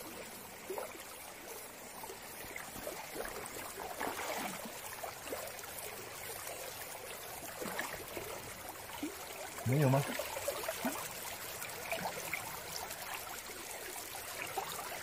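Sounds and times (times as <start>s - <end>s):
stream running over stones: 0.0s - 15.0s
water sloshing and splashing: 2.1s - 13.6s.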